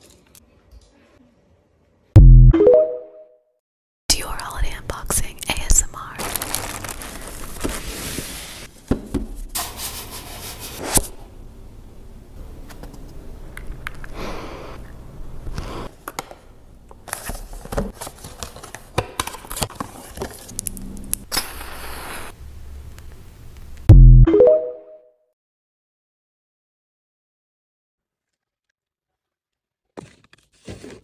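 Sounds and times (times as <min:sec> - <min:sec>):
paper and cardboard rustling: 0:06.2 - 0:11.0, 0:17.0 - 0:20.5, 0:30.0 - 0:31.0.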